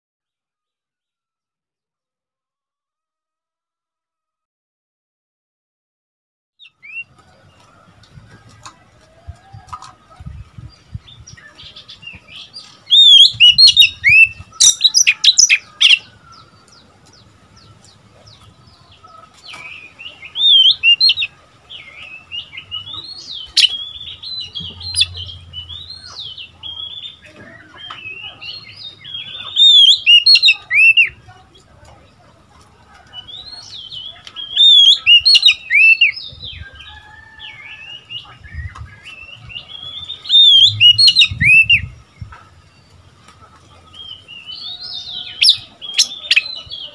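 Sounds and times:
soft bird twittering: 0:10.2 - 0:18.4, 0:19.0 - 0:31.3, 0:33.2 - 0:43.0, 0:43.7 - 0:46.9
bird whistling song: 0:11.0 - 0:16.1, 0:19.7 - 0:31.2, 0:33.2 - 0:42.3, 0:44.0 - 0:46.9.

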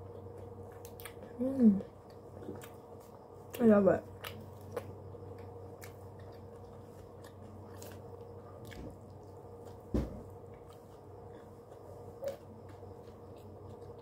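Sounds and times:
quiet chewing: 0:00.0 - 0:14.0
room hum: 0:00.0 - 0:14.0.

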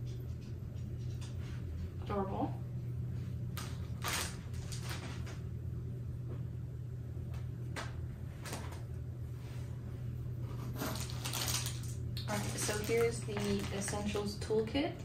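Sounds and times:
steady low hum: 0:00.0 - 0:15.0
plastic bag crinkling: 0:03.5 - 0:05.4, 0:10.7 - 0:14.6.

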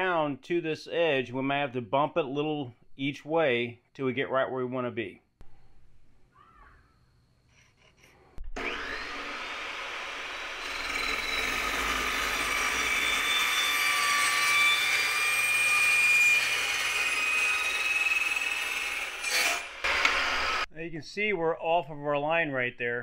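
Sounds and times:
chop saw cutting aluminium whine: 0:07.7 - 0:20.7
chop saw starting up: 0:08.6 - 0:17.8.

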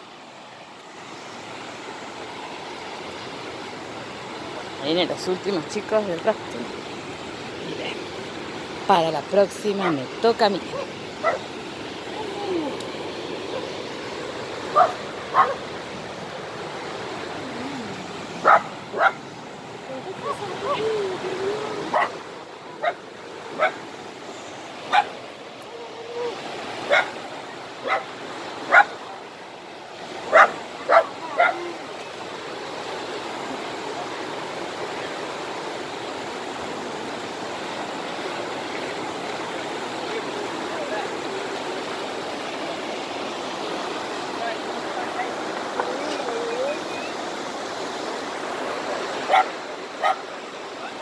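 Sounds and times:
fast-flowing river rushing: 0:00.0 - 0:51.0
dog barking: 0:10.8 - 0:11.5, 0:14.7 - 0:15.6, 0:18.4 - 0:19.2, 0:21.9 - 0:22.2, 0:22.8 - 0:23.0, 0:23.6 - 0:23.8, 0:24.9 - 0:25.1, 0:26.9 - 0:27.2, 0:27.8 - 0:28.1, 0:28.7 - 0:29.0, 0:30.3 - 0:31.7, 0:49.3 - 0:50.3.

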